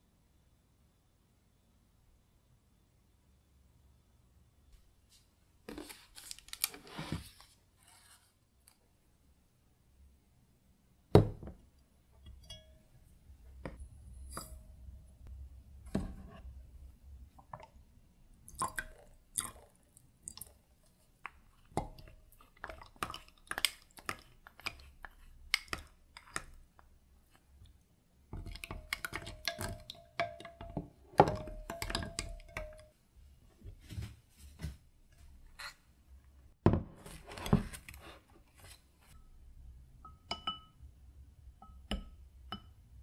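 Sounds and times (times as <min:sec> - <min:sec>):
spoon stirring against glass: 0:12.2 - 0:12.8, 0:21.4 - 0:26.6, 0:28.4 - 0:32.9, 0:40.1 - 0:40.8
clinks and taps on glass: 0:12.3 - 0:12.8, 0:29.1 - 0:32.9, 0:40.0 - 0:40.8, 0:41.6 - 0:42.8.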